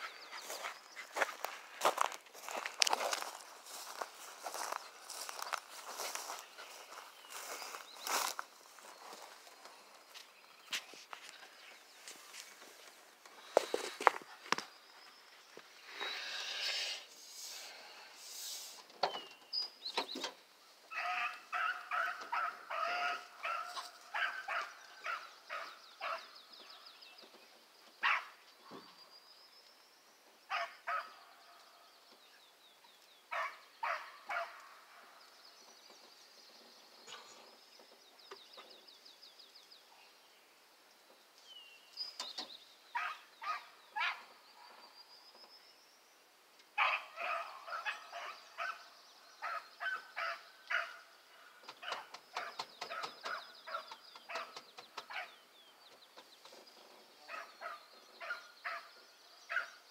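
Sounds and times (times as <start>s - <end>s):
hounds barking and baying: 20.9s - 26.4s, 28.0s - 28.4s, 30.5s - 31.6s, 33.3s - 35.2s, 42.9s - 44.8s, 46.8s - 55.4s, 57.2s - 59.9s.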